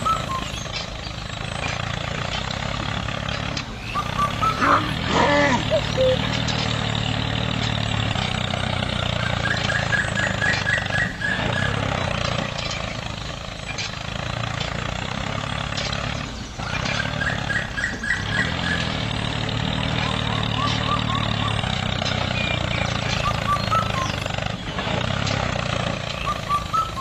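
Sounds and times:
small tractor motor running: 0:00.0 - 0:27.0
quick high chirps: 0:03.8 - 0:06.9, 0:26.1 - 0:27.0.

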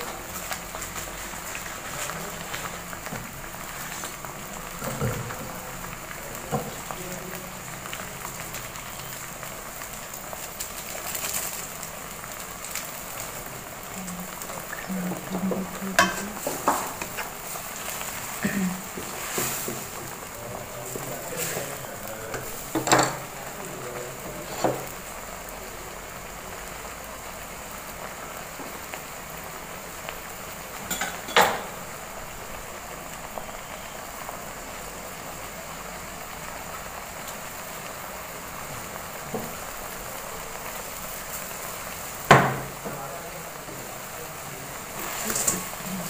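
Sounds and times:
broth bubbling in a wok: 0:00.0 - 0:46.0
wooden spatula knocking wok: 0:15.1 - 0:20.3.

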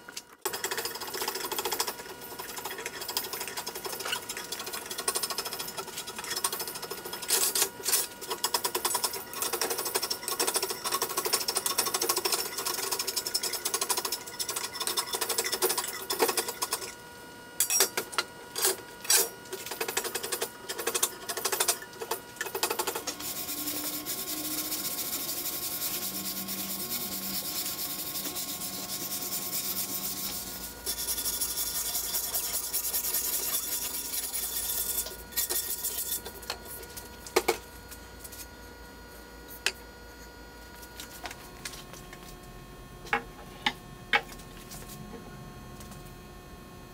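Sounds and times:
hand tool scraping wood: 0:23.1 - 0:36.3.

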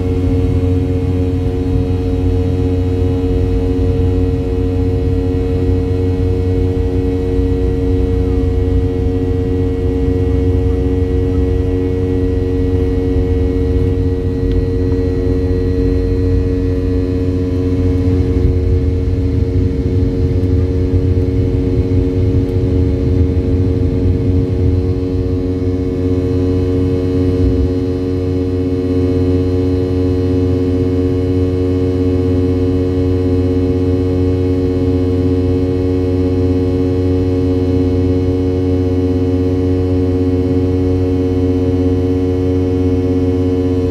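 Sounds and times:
jet engines droning: 0:00.0 - 0:38.9.

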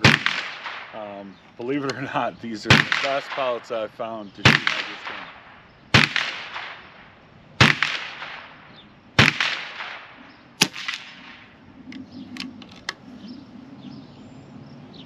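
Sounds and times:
air rifle shots cracking: 0:00.0 - 0:13.0.

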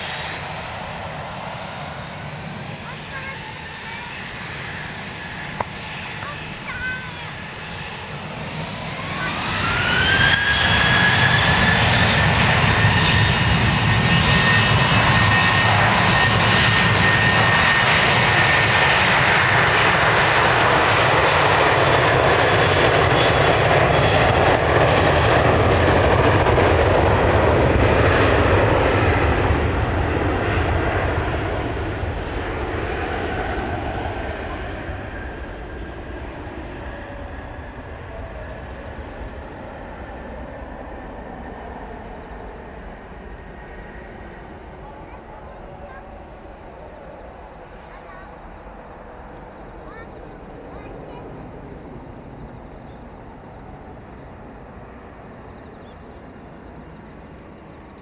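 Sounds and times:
jet engines spooling up: 0:00.0 - 0:58.0.

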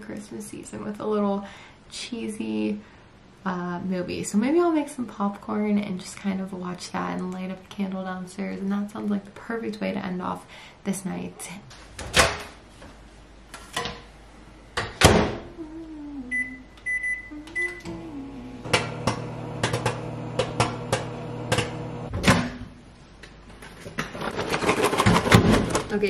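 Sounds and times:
microwave oven humming: 0:16.2 - 0:22.1
short keypad beeps: 0:16.3 - 0:17.9.

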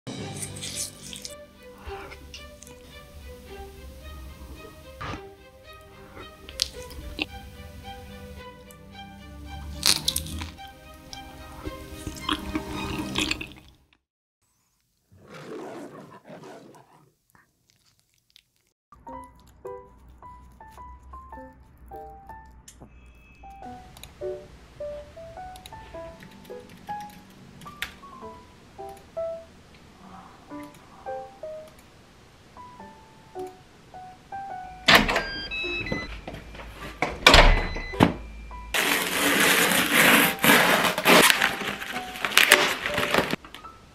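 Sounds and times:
background music: 0:00.1 - 0:13.6, 0:19.0 - 0:31.9, 0:32.5 - 0:43.9
eating sounds: 0:00.3 - 0:02.8, 0:05.9 - 0:07.4, 0:09.7 - 0:13.8, 0:15.2 - 0:22.7
growling roar: 0:15.1 - 0:17.1, 0:29.9 - 0:31.2
foam scraping and squeaking: 0:38.7 - 0:43.4.

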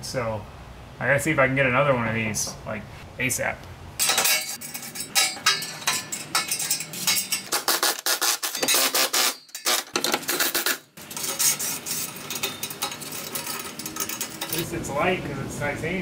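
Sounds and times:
metallic clinking and scraping: 0:04.0 - 0:14.8.

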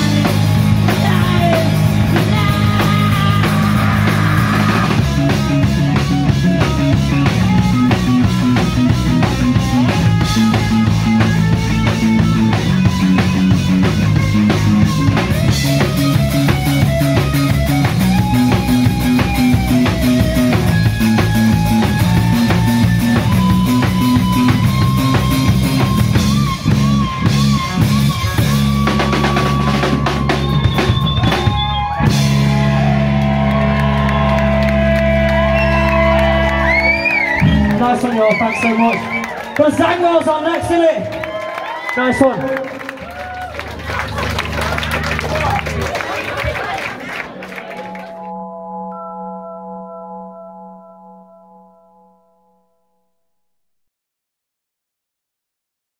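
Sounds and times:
drum kit fast beat: 0:00.0 - 0:33.0
live rock band playing: 0:00.0 - 0:51.8.

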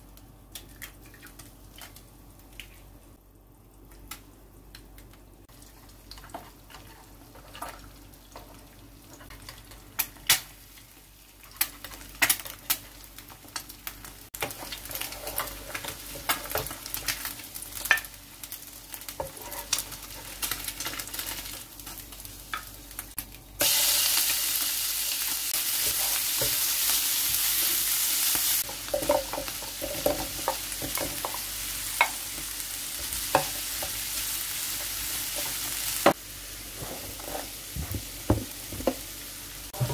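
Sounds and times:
food sizzling in frying pan: 0:05.5 - 0:39.9
spatula tapping and scraping pan: 0:28.6 - 0:31.4, 0:33.2 - 0:34.0.

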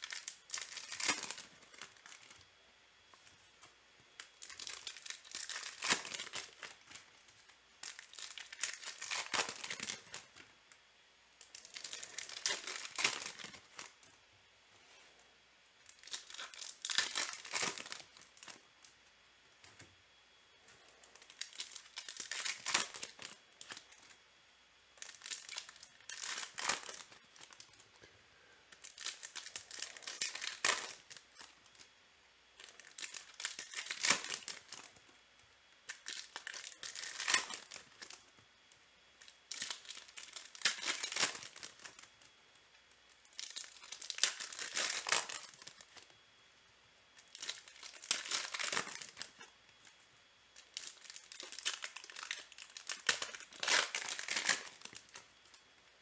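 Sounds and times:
foil wrappers crinkling and tearing: 0:00.0 - 0:02.4, 0:03.1 - 0:10.4, 0:11.4 - 0:14.1, 0:15.8 - 0:19.0, 0:20.7 - 0:24.2, 0:25.0 - 0:28.1, 0:28.7 - 0:31.9, 0:32.6 - 0:35.1, 0:35.8 - 0:38.4, 0:39.1 - 0:42.3, 0:42.9 - 0:46.1, 0:47.2 - 0:50.0, 0:50.6 - 0:55.6.

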